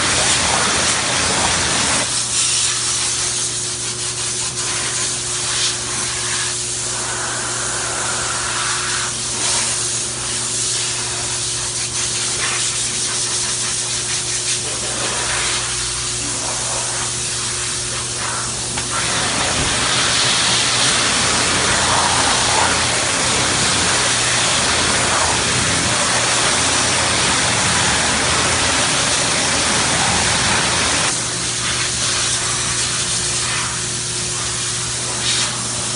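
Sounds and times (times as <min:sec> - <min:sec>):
constant low hum: 0:00.0 - 0:35.9
water spraying on car panel: 0:18.6 - 0:31.1.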